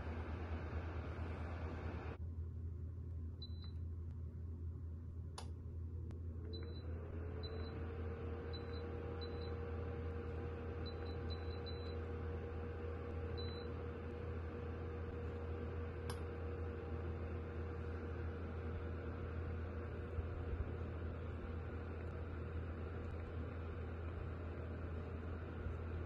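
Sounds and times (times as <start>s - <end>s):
fan whine and air rush: 0.0s - 2.2s
low hum: 0.0s - 26.0s.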